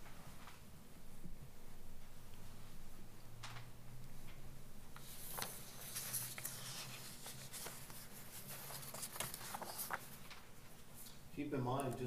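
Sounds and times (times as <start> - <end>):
steady low hum: 0.0 - 12.0
papers rustling: 5.0 - 11.2.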